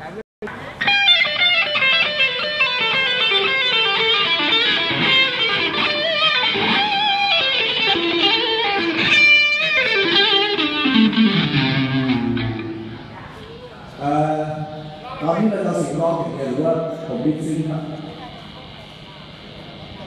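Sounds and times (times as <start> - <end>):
electric guitar played fast: 0.8 - 13.4.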